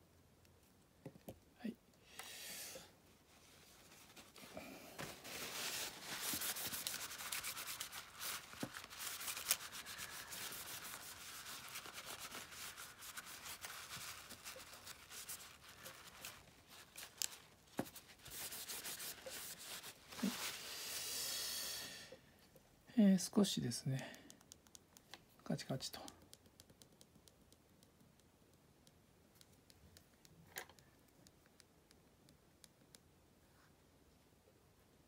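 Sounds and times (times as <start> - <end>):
scratchy wiping of circuit board: 5.2 - 16.4.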